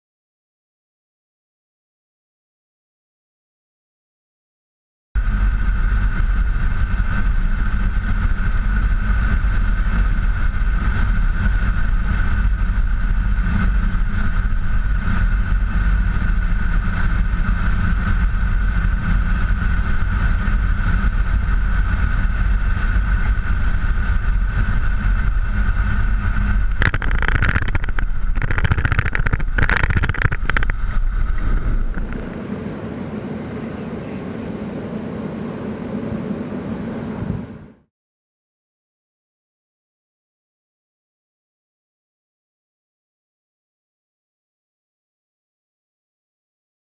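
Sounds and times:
turboprop engines droning: 0:05.2 - 0:37.9.

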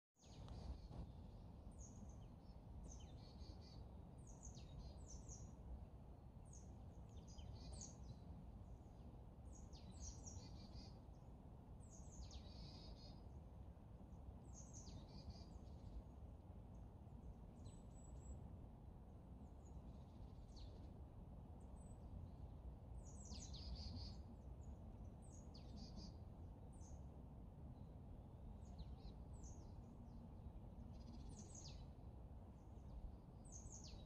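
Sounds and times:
steady low rumble: 0:00.3 - 0:07.4.

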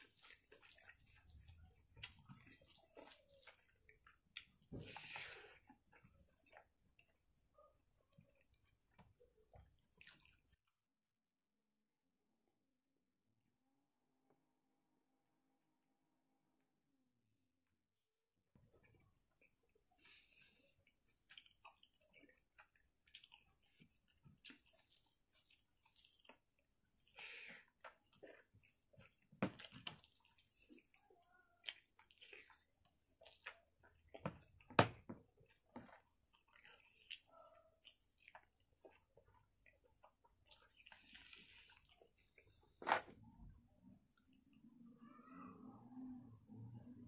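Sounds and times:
wet chewing and lip smacks: 0:00.0 - 0:07.2, 0:08.1 - 0:10.7, 0:18.9 - 0:34.7, 0:35.3 - 0:43.4.

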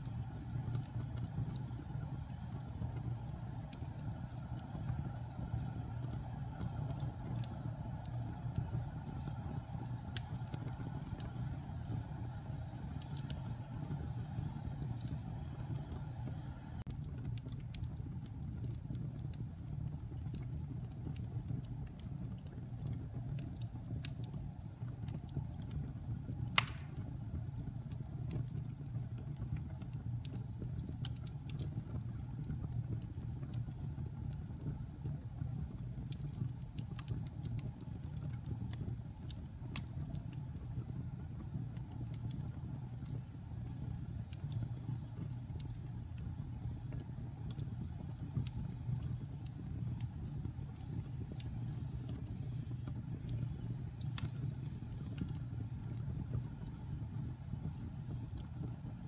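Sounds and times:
wood fire crackling: 0:00.0 - 0:59.0
loud pop from fire: 0:26.6 - 0:27.2.

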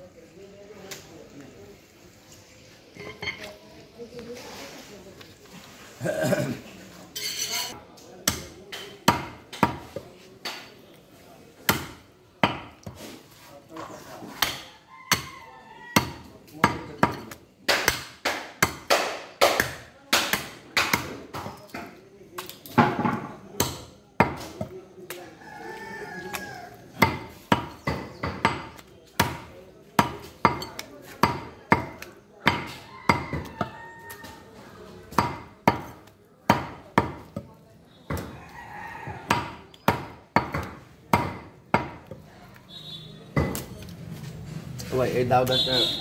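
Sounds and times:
knife chopping meat on wood: 0:08.2 - 0:10.7, 0:11.6 - 0:13.0, 0:16.0 - 0:21.6, 0:26.4 - 0:34.2, 0:35.1 - 0:37.5, 0:39.2 - 0:42.2, 0:43.4 - 0:43.7
rooster crowing: 0:14.7 - 0:16.2, 0:25.3 - 0:26.8, 0:32.7 - 0:34.5, 0:38.3 - 0:39.3.

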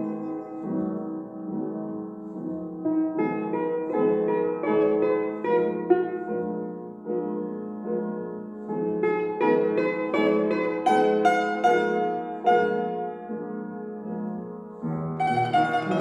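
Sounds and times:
plucked string melody: 0:15.2 - 0:16.0.

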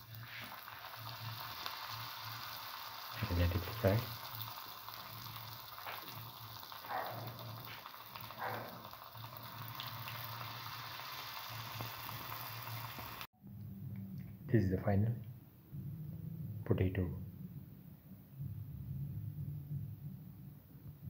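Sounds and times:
oil crackles: 0:00.0 - 0:13.3
patties sizzling in hot oil: 0:00.0 - 0:13.3.

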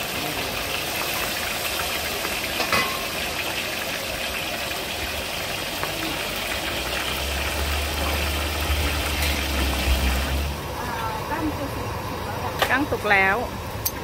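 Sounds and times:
fish deep-frying sizzling hiss: 0:00.0 - 0:14.0
ladle clinking on wok: 0:02.5 - 0:03.3.

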